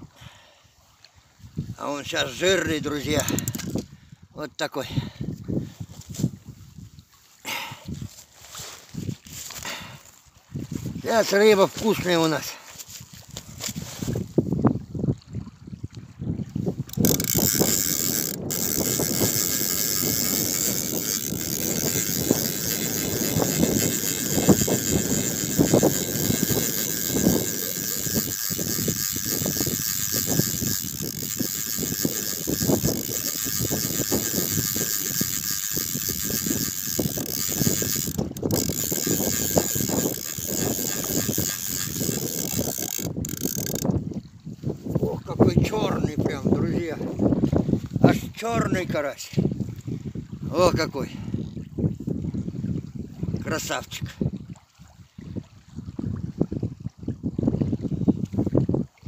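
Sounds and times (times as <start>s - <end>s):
fishing reel clicking and rattling: 2.2s - 4.0s, 16.8s - 44.0s.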